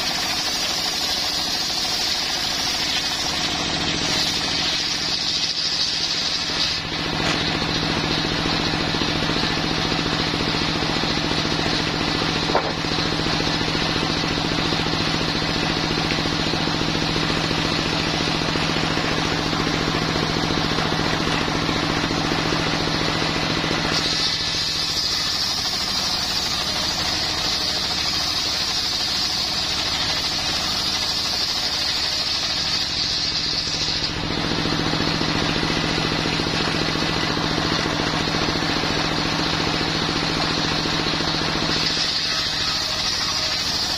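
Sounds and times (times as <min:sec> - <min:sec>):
high steady whine: 0:00.0 - 0:31.7
saw bench engine running: 0:00.0 - 0:43.9
sharp knock: 0:12.5 - 0:12.8.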